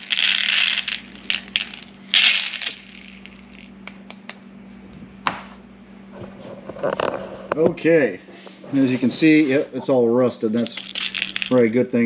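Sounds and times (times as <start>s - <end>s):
shotgun pellets pouring onto surface: 0.0s - 3.6s, 10.7s - 11.6s.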